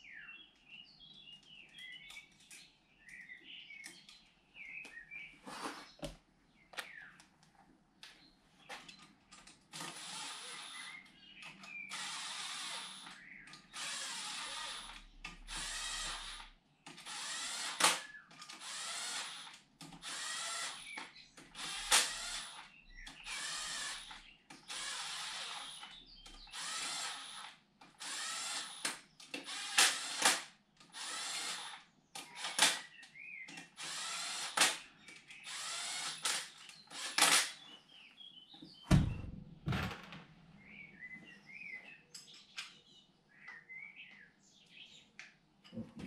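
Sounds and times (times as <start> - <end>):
power drill bursts: 9.8 - 11.0, 11.9 - 32.9, 33.7 - 34.8, 35.4 - 37.6
dull thump: 38.9 - 40.2.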